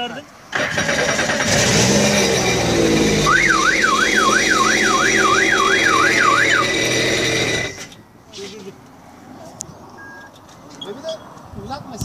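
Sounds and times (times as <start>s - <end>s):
warbling electronic siren: 3.2s - 7.5s.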